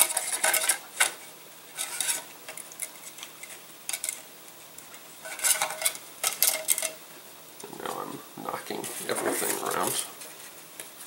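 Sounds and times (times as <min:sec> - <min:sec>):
plastic clicks and rustles: 0:01.8 - 0:04.2.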